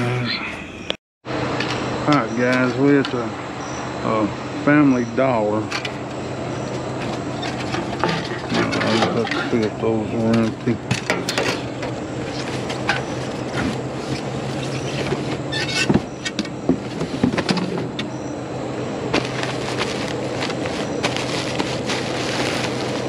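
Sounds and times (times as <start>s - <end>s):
steady low hum: 0.0s - 23.0s
boxes and bag rustling and knocking: 10.3s - 18.0s, 19.1s - 23.0s.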